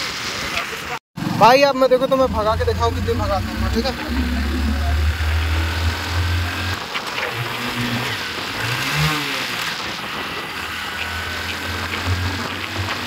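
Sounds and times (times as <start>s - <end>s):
vehicle engine hum: 1.2s - 13.0s
wind and road noise: 1.2s - 13.0s.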